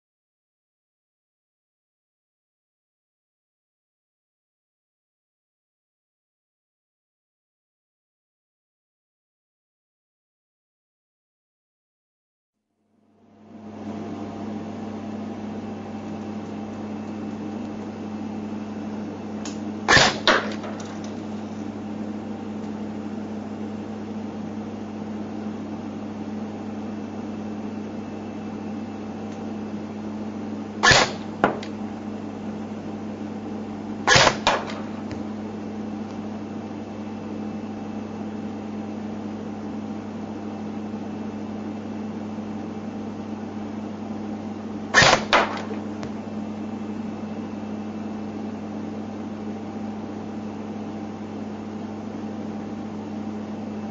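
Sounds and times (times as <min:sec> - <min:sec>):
steady low hum: 0:12.9 - 0:53.9
airsoft gun sharp cracks: 0:19.5 - 0:21.2, 0:30.8 - 0:31.8, 0:34.1 - 0:35.3, 0:44.9 - 0:45.9.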